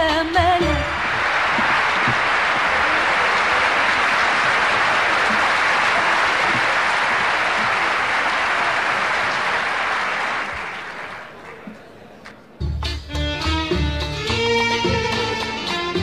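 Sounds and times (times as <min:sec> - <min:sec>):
audience applauding: 0:00.6 - 0:12.5.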